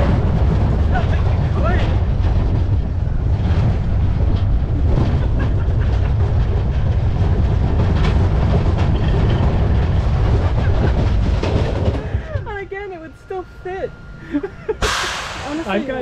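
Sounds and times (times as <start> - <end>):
roller coaster wheels rumbling: 0.0 - 16.0.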